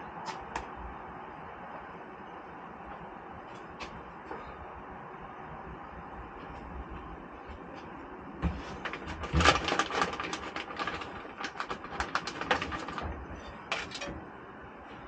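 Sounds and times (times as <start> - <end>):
clicking and rattling of small parts: 8.8 - 14.2.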